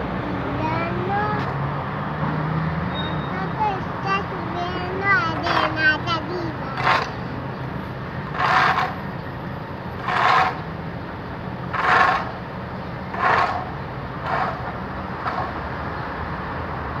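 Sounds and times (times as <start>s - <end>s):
low engine hum: 0.0s - 17.0s
shovel scraping road: 5.0s - 9.2s, 9.9s - 10.8s, 11.7s - 15.7s.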